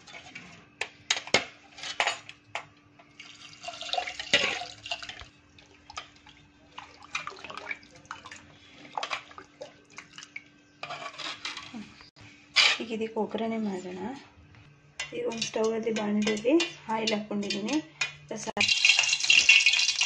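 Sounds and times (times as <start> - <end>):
liquid sloshing in pot: 3.2 - 10.5
ladle scraping metal pot: 10.8 - 12.0.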